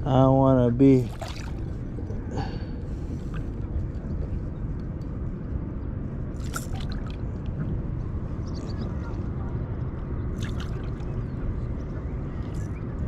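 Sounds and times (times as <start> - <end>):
low outdoor rumble: 0.0 - 13.0
fish splashing at water surface: 1.1 - 1.7, 6.4 - 7.2, 10.4 - 11.1.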